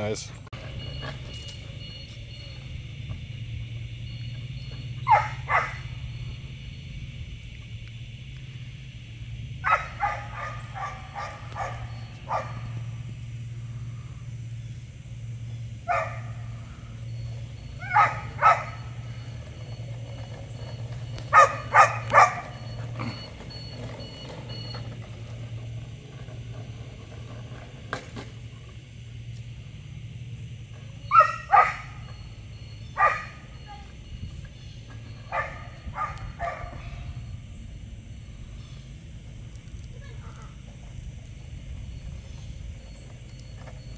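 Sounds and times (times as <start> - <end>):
steady low hum: 0.0 - 43.9
puppy barking: 5.0 - 5.9, 9.6 - 12.7, 15.9 - 16.4, 17.8 - 18.9, 21.3 - 23.1, 31.1 - 32.0, 33.0 - 33.6, 35.3 - 36.8.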